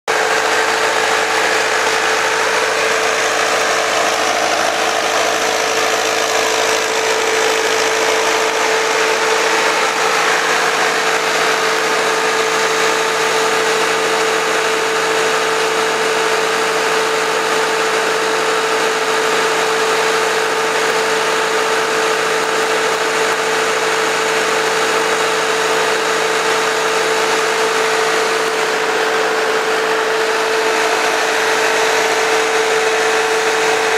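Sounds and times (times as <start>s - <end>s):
diesel engine running under load: 0.0s - 33.9s.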